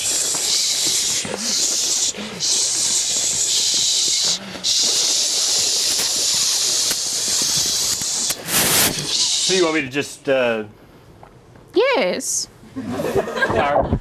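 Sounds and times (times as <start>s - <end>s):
people hissing shhh: 0.0s - 9.9s.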